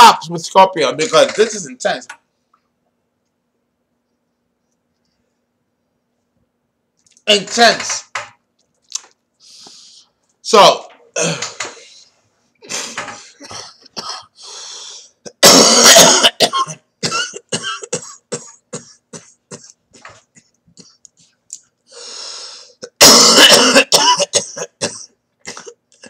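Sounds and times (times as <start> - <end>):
man coughing: 11.2 - 11.8, 12.6 - 14.4, 15.3 - 21.0, 22.8 - 26.0.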